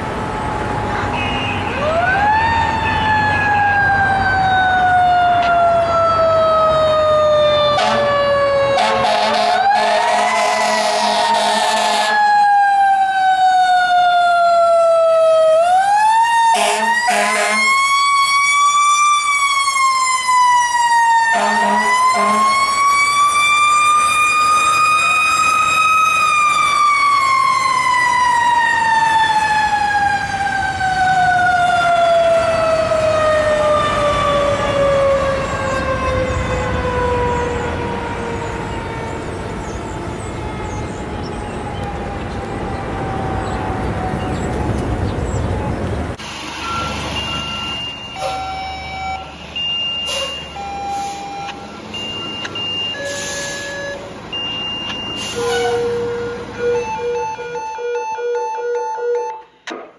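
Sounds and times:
fire engine siren winding: 1.8 - 44.8, 46.2 - 59.8
horn blasts: 7.7 - 12.2, 16.6 - 17.8, 21.3 - 22.7, 55.2 - 57.6.

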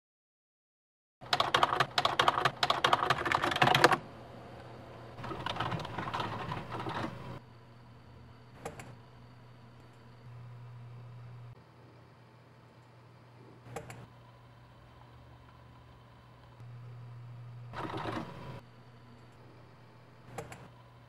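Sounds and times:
typing on keyboard: 1.3 - 4.0, 5.2 - 7.2
low steady hum: 4.0 - 21.0.

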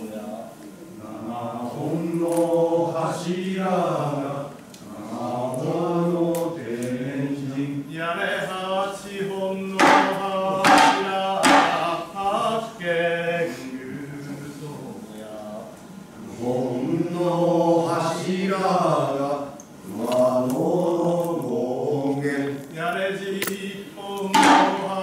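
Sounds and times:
voices chanting together: 0.9 - 25.0
hand drum strikes: 24.4 - 24.9.

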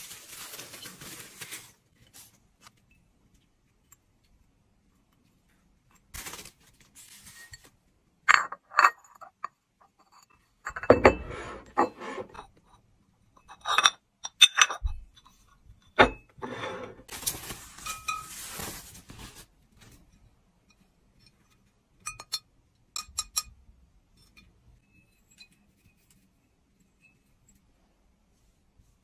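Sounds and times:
tissue paper rustling: 0.0 - 2.7, 6.1 - 7.6, 17.1 - 19.9
ceramic tableware clinking: 8.3 - 12.6.

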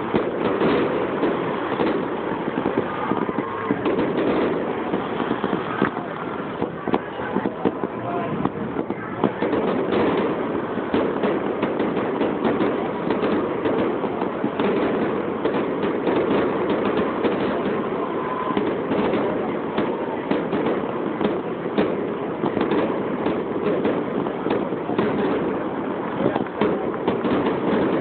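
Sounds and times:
fireworks bangs and pops: 0.0 - 28.0.

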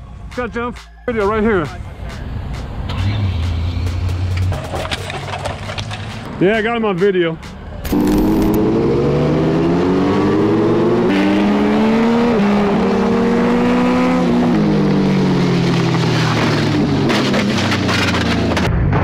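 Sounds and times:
motorcycle engine accelerating: 7.8 - 19.0.

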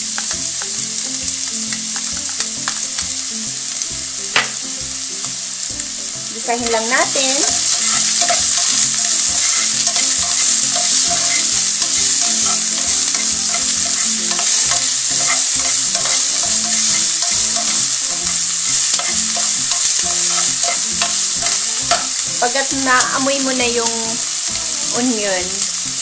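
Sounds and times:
onion sizzling in hot oil: 0.0 - 26.0
spatula scraping a pan: 6.6 - 24.9.

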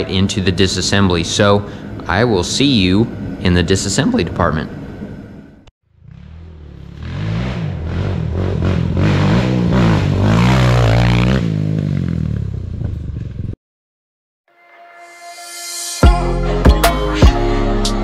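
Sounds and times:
quad engine revving: 5.9 - 13.4.

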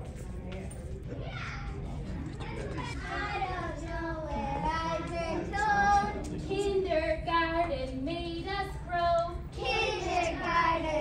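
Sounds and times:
children singing: 9.6 - 11.0.

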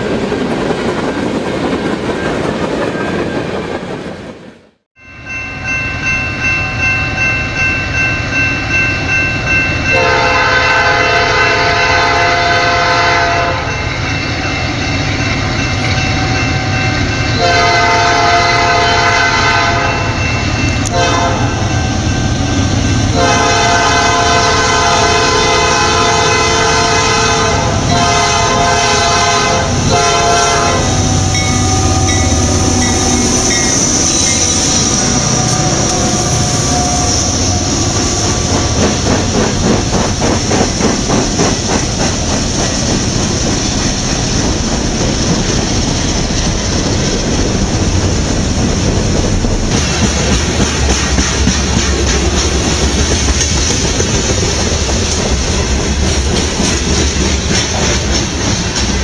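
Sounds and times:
train wheels rumbling on rails: 0.0 - 4.9, 5.9 - 59.0
train rumbling: 0.0 - 59.0
locomotive air horn: 9.9 - 13.8, 17.4 - 20.2, 20.8 - 22.1, 22.7 - 38.7.

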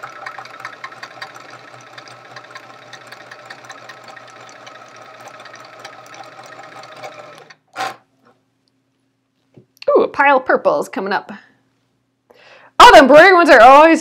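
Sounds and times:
sewing machine stitching: 0.0 - 8.1.

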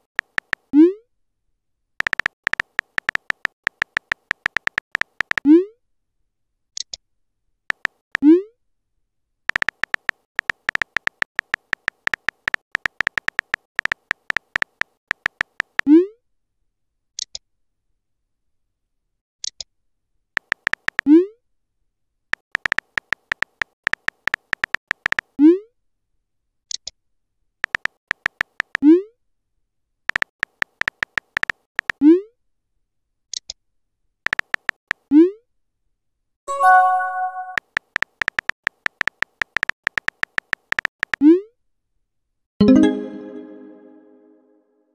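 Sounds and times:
keyboard tap clicks: 2.0 - 5.4, 9.5 - 15.8, 27.6 - 28.8, 34.3 - 34.8, 37.3 - 41.2
rising bloop message sound: 42.6 - 44.4.

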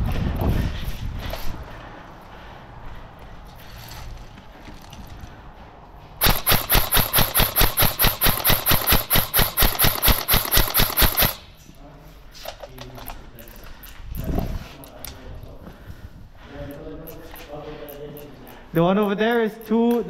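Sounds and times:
airsoft gun rapid firing: 6.2 - 11.5.

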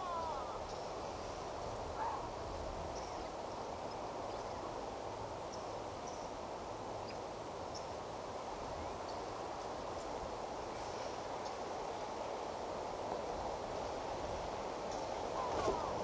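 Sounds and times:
high chirps of birds or insects: 0.0 - 1.2
steady outdoor hiss: 0.0 - 16.0.

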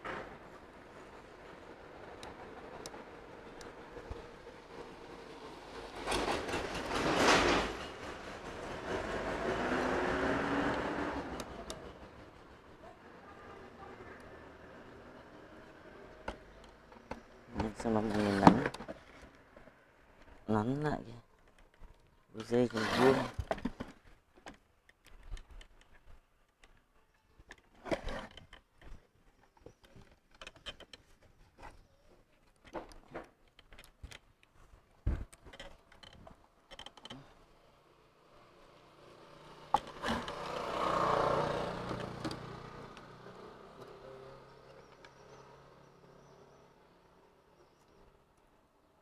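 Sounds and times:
motor vehicle passing: 7.1 - 16.3, 37.6 - 47.4.

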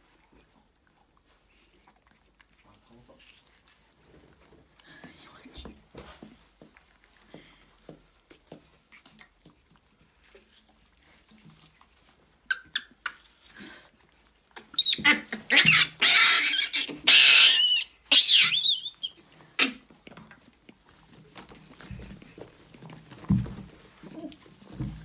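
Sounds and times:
faint scuffles and taps: 4.0 - 10.5, 20.1 - 25.0
monkeys screaming and squealing: 14.8 - 19.8.

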